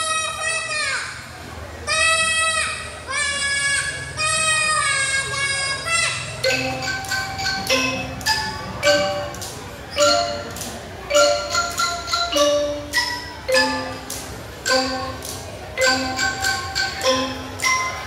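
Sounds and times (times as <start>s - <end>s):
mallet percussion melody: 6.4s - 18.0s.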